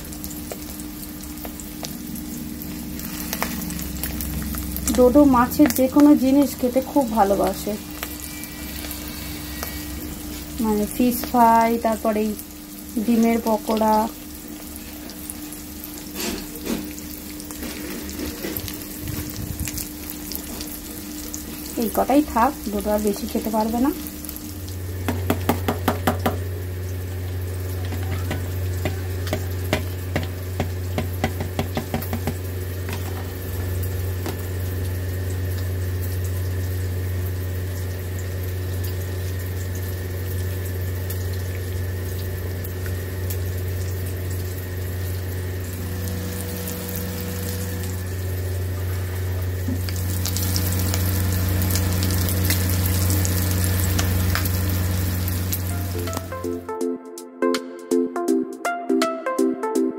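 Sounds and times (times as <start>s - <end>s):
fritters sizzling in hot oil: 0.0s - 56.3s
low hum: 0.2s - 13.0s, 41.8s - 56.7s.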